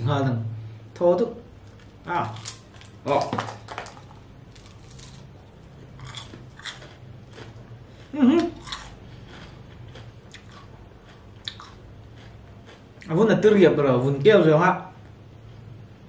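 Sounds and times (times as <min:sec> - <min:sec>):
low steady hum: 0:00.0 - 0:16.0
fried chicken crunching: 0:01.6 - 0:13.2
person humming: 0:08.1 - 0:08.6.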